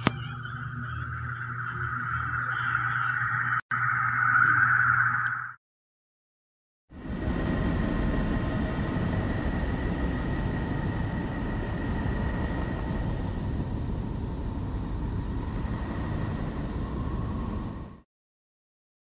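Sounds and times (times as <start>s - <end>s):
low rushing rumble: 7.0s - 18.0s.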